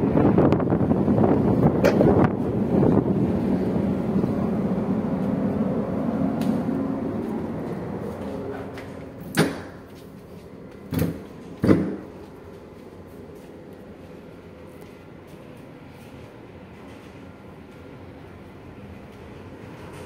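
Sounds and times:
low steady hum: 0.0s - 20.0s
wind: 0.0s - 20.0s
door clunks: 10.9s - 12.0s.

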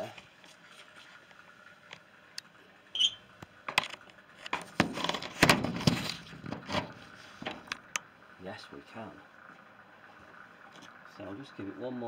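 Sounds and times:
camera handling squeak: 2.9s - 3.2s
scraping against microphone: 4.5s - 7.7s.

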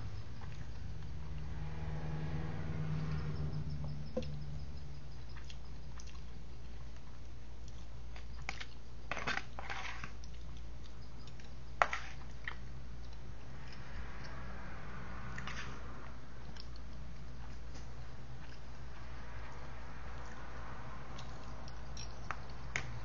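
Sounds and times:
steady low hum: 0.0s - 23.0s
person chewing: 5.2s - 8.8s, 16.4s - 20.4s
fork scraping food tray: 9.1s - 10.2s.

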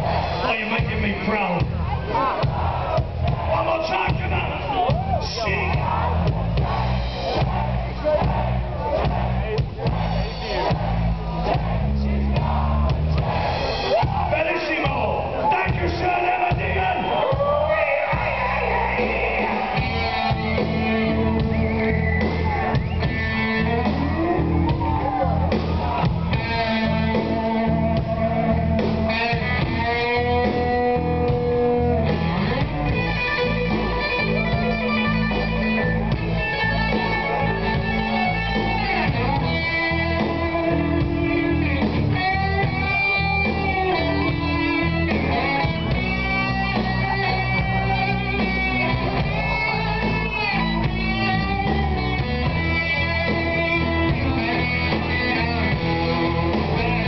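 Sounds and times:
bass guitar: 0.0s - 57.0s
drums: 0.0s - 57.0s
electric guitar lead notes: 18.1s - 57.0s.

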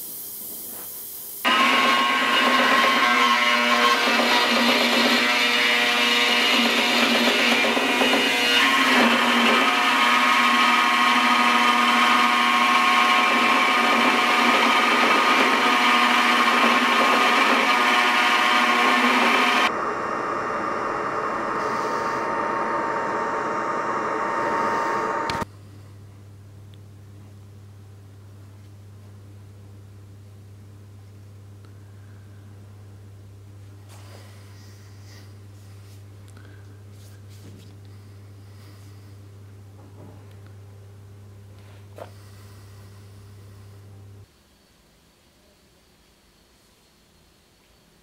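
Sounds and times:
belt grinder grinding metal: 1.5s - 19.8s.

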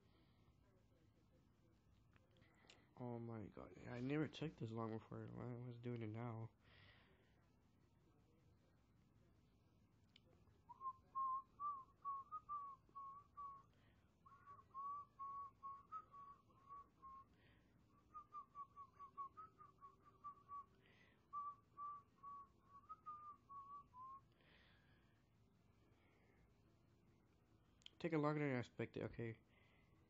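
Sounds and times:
person whistling a tune: 10.7s - 13.7s, 14.3s - 17.4s, 18.0s - 24.4s.

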